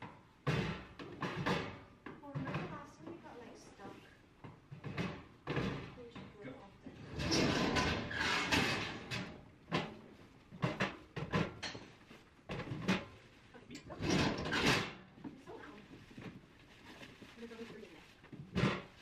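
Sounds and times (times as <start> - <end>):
parcels rustling: 15.3 - 19.0.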